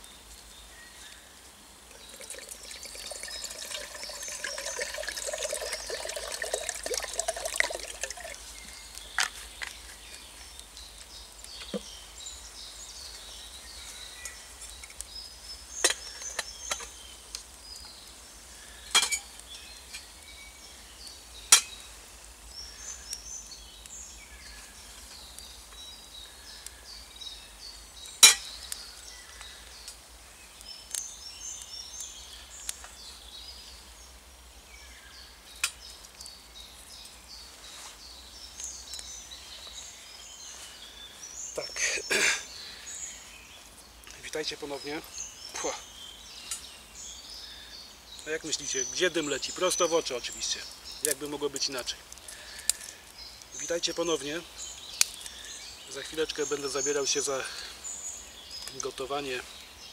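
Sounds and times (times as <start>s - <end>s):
water pouring into metal pot: 1.9s - 8.4s.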